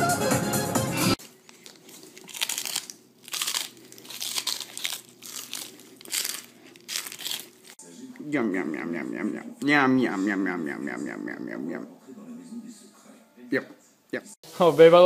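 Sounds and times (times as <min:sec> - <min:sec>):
lettuce leaf crunching: 0:01.2 - 0:07.8.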